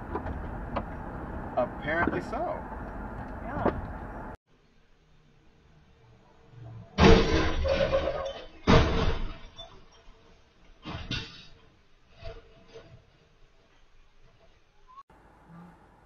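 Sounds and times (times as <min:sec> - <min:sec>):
loud crash bang with clattering: 0:07.0 - 0:09.5.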